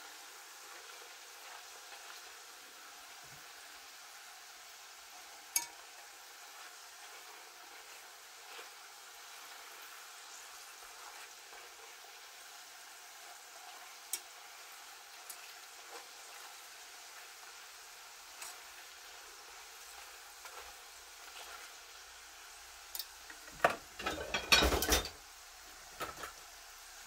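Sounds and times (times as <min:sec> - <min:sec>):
slices deep-frying in hot oil: 0:00.0 - 0:27.0
metal fork clicking against pot: 0:05.5 - 0:05.8.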